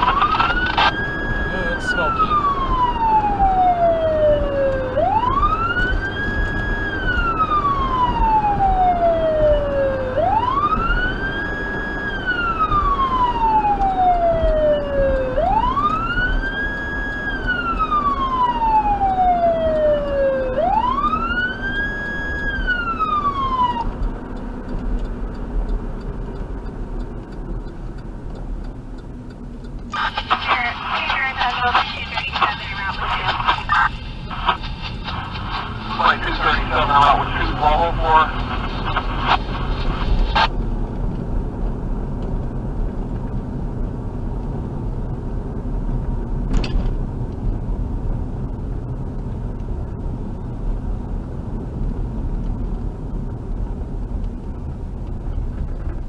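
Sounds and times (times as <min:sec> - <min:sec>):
electronic siren wailing: 0:00.0 - 0:24.0, 0:30.0 - 0:40.5
road and engine noise: 0:00.0 - 0:56.0.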